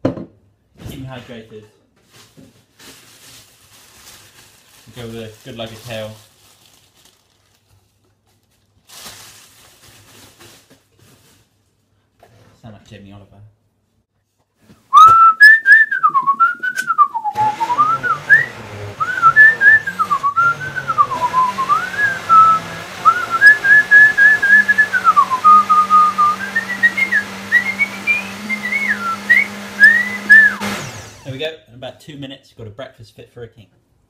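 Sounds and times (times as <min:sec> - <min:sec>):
person whistling a tune: 0:14.9 - 0:30.6
blender running: 0:17.2 - 0:31.4.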